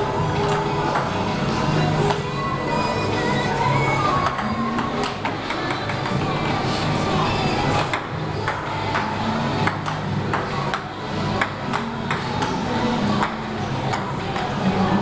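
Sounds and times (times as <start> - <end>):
ball clacking off boards: 7.8 - 12.6, 13.2 - 14.6.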